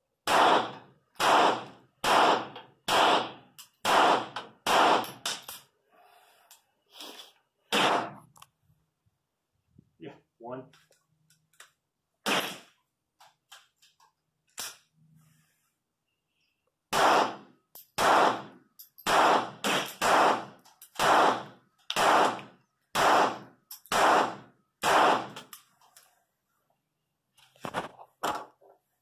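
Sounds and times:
pistol shots with echo: 0:00.2 - 0:05.4, 0:07.7 - 0:08.2, 0:12.2 - 0:12.7, 0:16.9 - 0:25.4.

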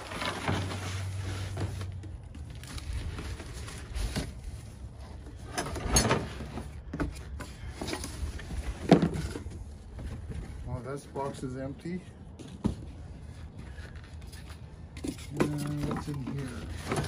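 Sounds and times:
cardboard box scraping: 0:00.0 - 0:02.0
cardboard rustling: 0:00.0 - 0:04.8.

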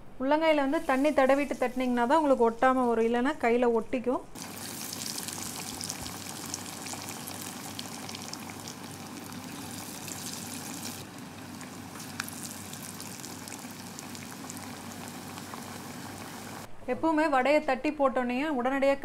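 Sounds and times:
fritters sizzling in hot oil: 0:04.4 - 0:16.7.

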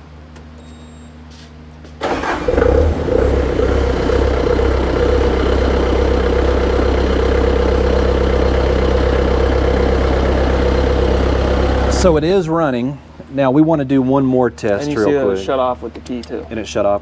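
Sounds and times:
diesel engine cranking and idling: 0:02.0 - 0:13.2.

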